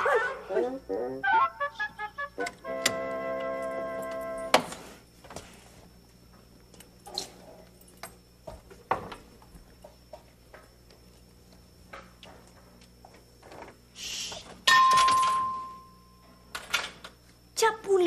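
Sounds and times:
short hiss: 13.9s - 14.6s.

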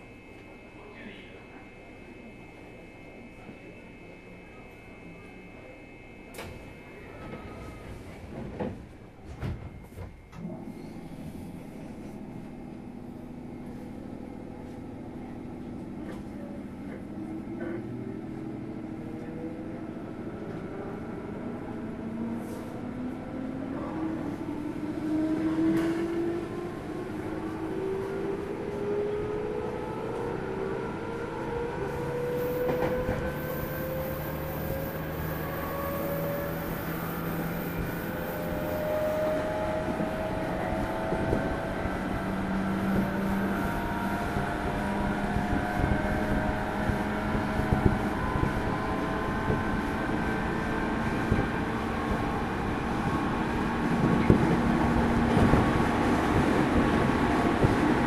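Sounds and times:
train motor and gear whine: 0.0s - 58.0s.

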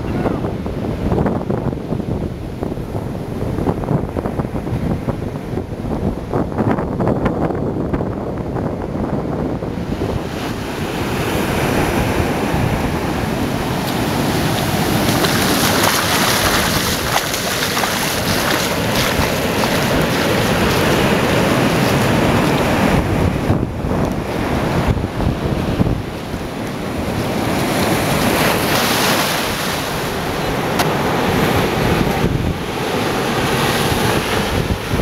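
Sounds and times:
wind rumbling on microphone: 0.0s - 35.0s
ocean surf breaking: 9.7s - 35.0s.

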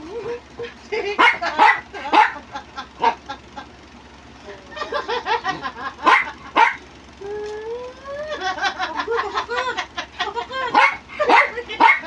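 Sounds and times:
dog barking: 1.2s - 2.4s, 3.0s - 3.2s, 6.0s - 6.8s, 10.7s - 12.0s
dog yipping: 1.2s - 2.4s, 6.0s - 6.8s, 10.7s - 12.0s.

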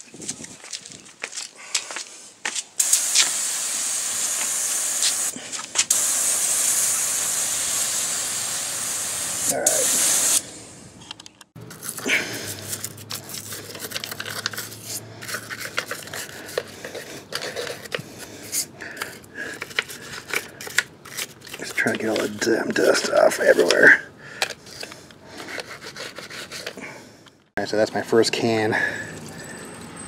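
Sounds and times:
aerosol can spraying: 2.8s - 10.5s.

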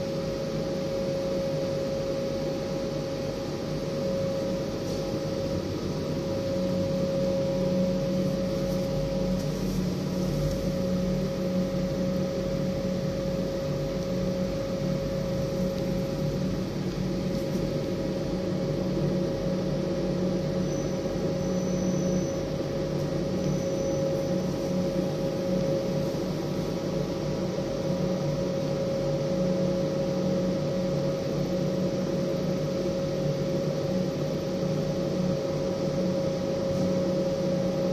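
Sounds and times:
electric motors humming: 0.0s - 28.2s.

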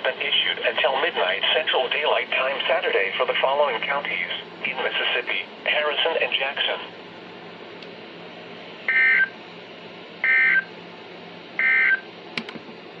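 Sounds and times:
harsh radio data bursts: 8.9s - 9.3s, 10.2s - 10.7s.

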